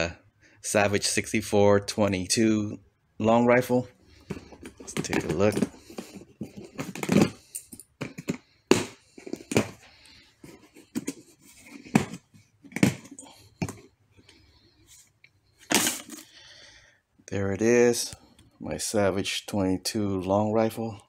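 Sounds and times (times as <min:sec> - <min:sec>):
case handling noise: 0:04.1 - 0:15.0, 0:15.6 - 0:16.4.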